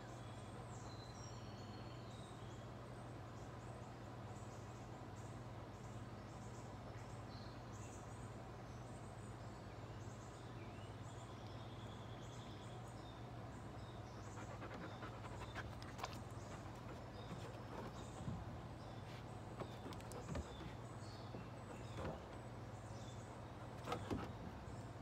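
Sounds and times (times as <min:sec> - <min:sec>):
dog panting: 0:14.2 - 0:20.8.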